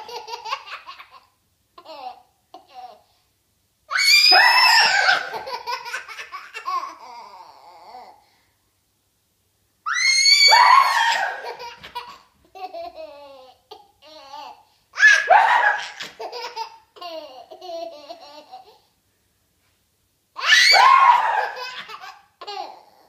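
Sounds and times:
toddler shrieking laughter: 3.9 - 8.2, 9.9 - 12.2, 14.2 - 18.8, 20.4 - 23.0.

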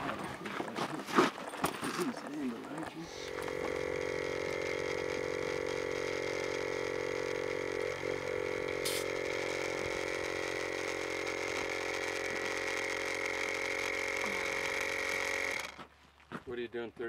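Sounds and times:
air compressor running: 2.0 - 15.9
short hiss of air: 8.8 - 9.1.

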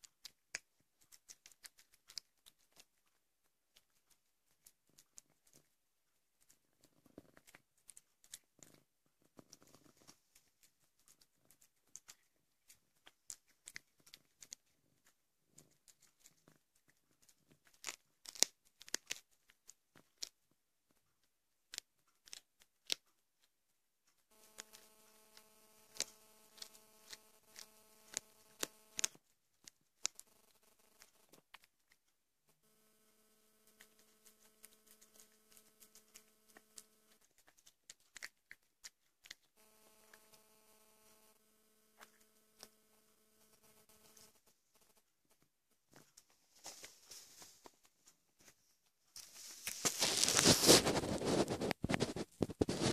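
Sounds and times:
cat crunching bones: 0.0 - 5.8, 6.4 - 23.2, 24.3 - 32.2, 33.7 - 40.2.

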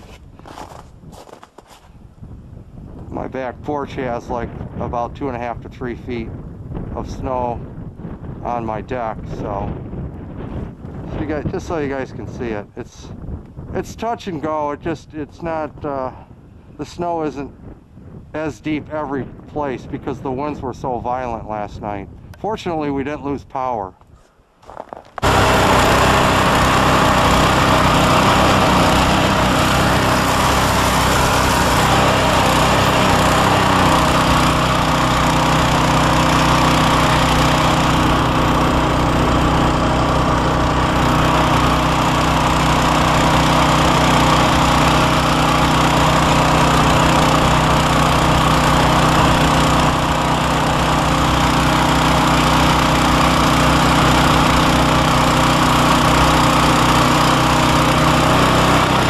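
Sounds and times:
snowblower engine running: 0.0 - 1.8, 24.6 - 59.0
auger throwing snow: 0.0 - 2.0, 24.6 - 59.0.

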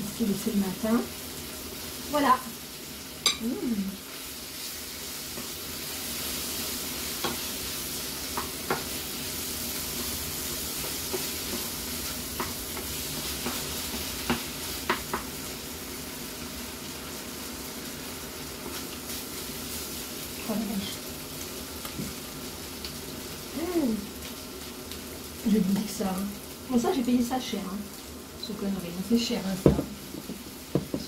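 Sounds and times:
food sizzling in a frying pan: 0.0 - 31.0.

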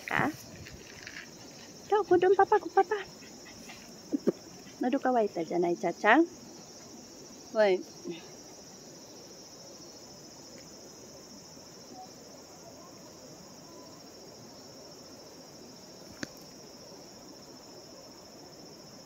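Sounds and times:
insects chirring: 0.0 - 19.0.

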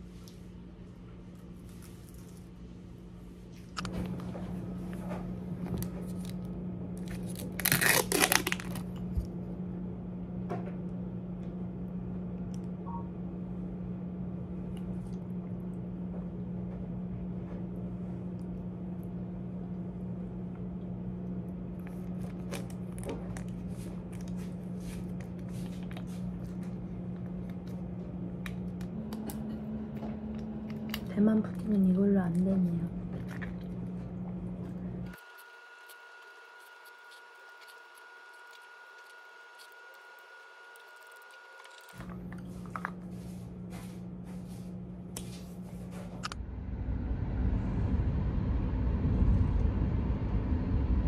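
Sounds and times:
steady low hum: 0.0 - 51.0
plastic crinkling rustle: 7.0 - 9.0.

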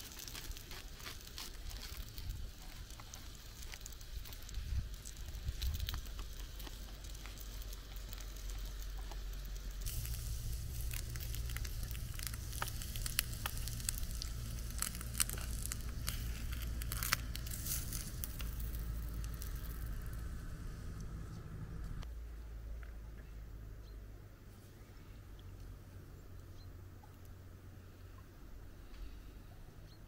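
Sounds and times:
sausages sizzling in a pan: 0.0 - 20.4
fire crackling: 0.0 - 22.1.

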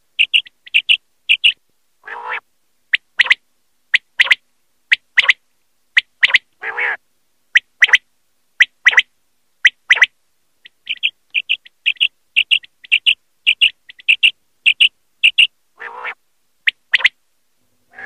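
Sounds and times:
quail calling: 0.2 - 5.4, 6.0 - 7.0, 9.7 - 17.2.

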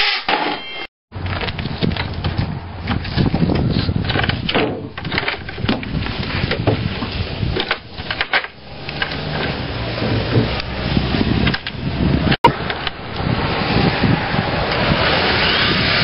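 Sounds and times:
wood scraping and knocking: 1.2 - 12.3.

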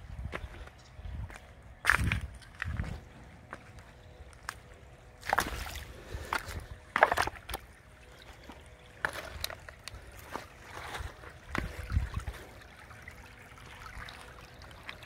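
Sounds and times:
faint trickling water: 2.3 - 15.0
footsteps crunching on dry leaves: 8.4 - 11.9.

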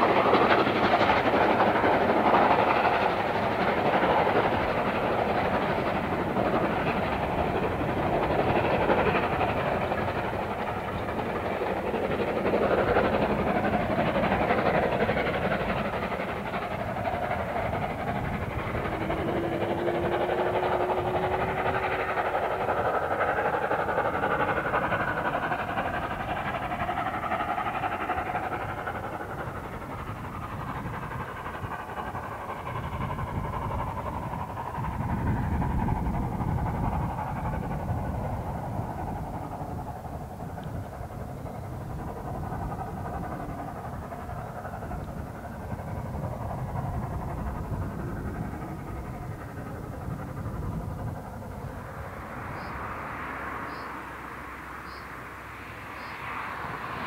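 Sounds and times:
steam locomotive exhaust: 0.0 - 57.0
train wheels rumbling on track: 0.0 - 57.0.

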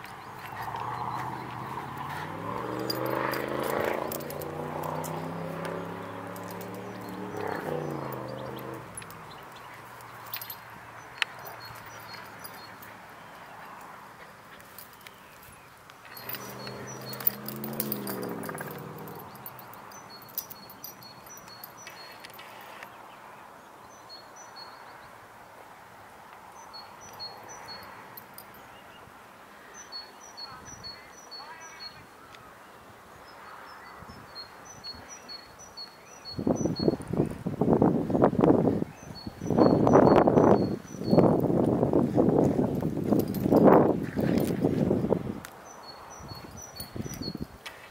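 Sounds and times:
puppy growling: 1.6 - 9.1, 16.2 - 19.5.

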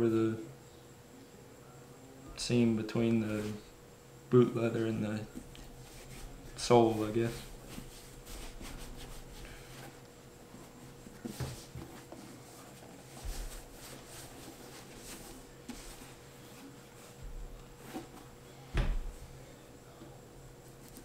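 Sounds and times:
thump: 18.8 - 19.1.

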